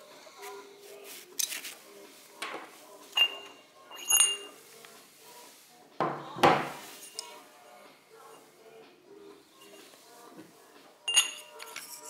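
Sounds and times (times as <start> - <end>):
handling scrape: 0.4 - 5.5
metal parts clinking: 3.2 - 4.5, 11.1 - 12.0.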